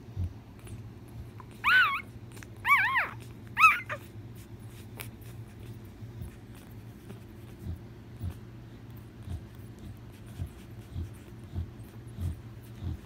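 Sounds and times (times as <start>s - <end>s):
puppy whimpering: 0.6s - 6.7s.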